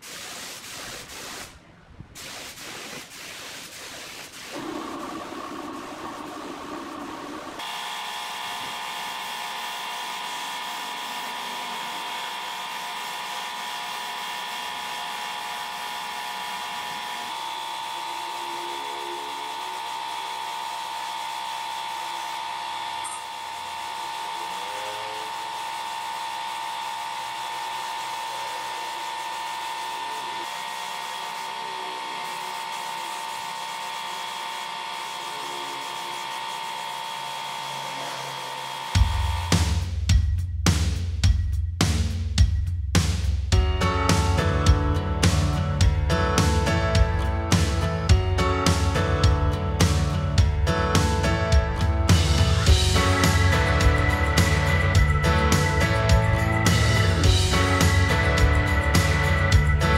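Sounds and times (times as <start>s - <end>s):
spray gun hissing: 0.0s - 1.5s, 2.2s - 7.5s.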